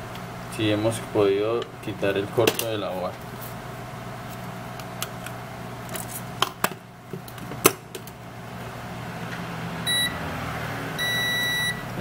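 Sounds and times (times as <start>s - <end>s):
multimeter beep: 9.9s - 10.2s, 11.0s - 11.9s.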